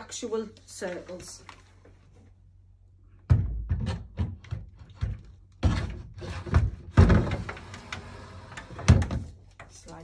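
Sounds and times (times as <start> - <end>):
plastic seat knocking and clattering: 3.3 - 7.5.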